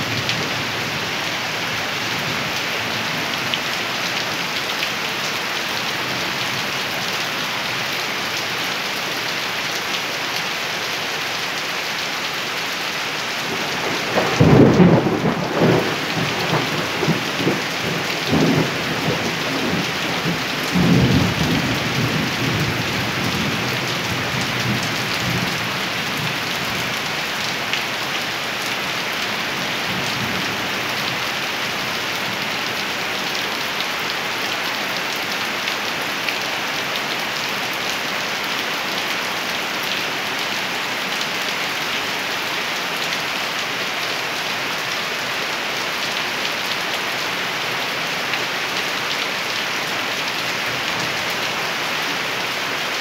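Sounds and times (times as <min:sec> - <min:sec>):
steady rain hissing: 0:00.0 - 0:53.0
rolling thunder: 0:14.0 - 0:22.7.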